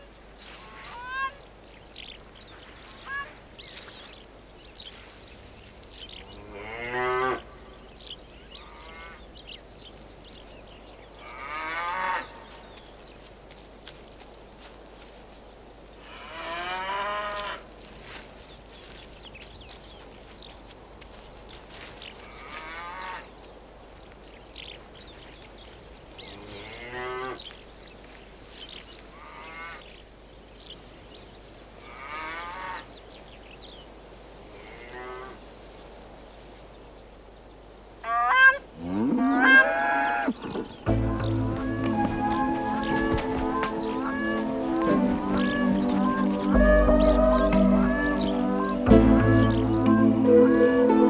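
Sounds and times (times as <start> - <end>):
cranes honking: 40.9 - 51.0
music: 40.9 - 51.0.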